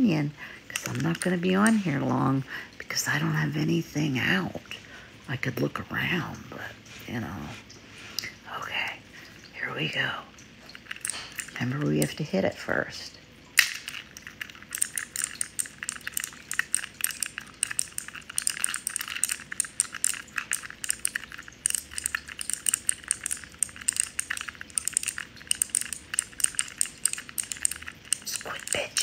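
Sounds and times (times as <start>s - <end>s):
plastic keycaps clicking: 0.7s - 1.8s, 10.7s - 12.1s, 13.6s - 29.0s.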